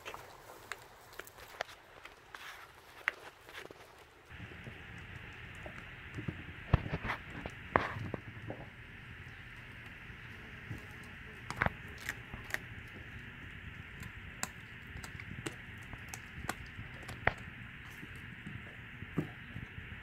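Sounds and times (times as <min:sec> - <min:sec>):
puppy chewing fish bones: 0:00.0 - 0:19.4.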